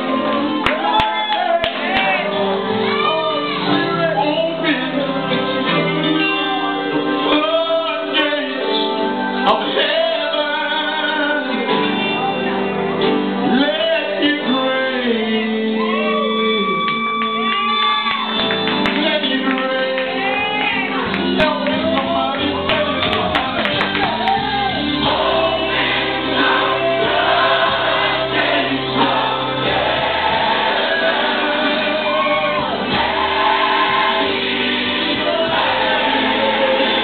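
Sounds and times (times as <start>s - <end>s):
gospel choir singing: 0.0s - 12.5s, 21.8s - 37.0s.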